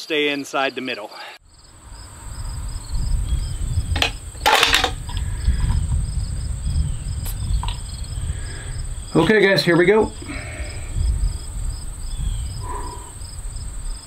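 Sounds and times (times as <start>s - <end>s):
insects chirping trill: 1.4s - 14.0s
uneven low rumble: 1.8s - 9.2s.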